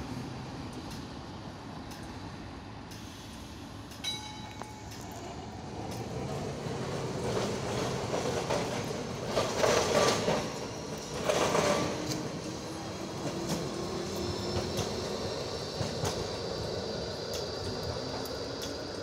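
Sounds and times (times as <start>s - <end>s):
tram running noise: 0.0s - 19.0s
wheels clattering on rails: 3.9s - 19.0s.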